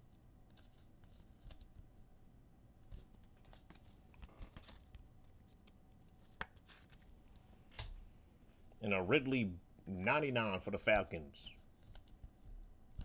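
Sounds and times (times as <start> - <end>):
trading cards clicking and rustling: 0.5 - 1.8, 2.9 - 7.9, 10.9 - 13.0.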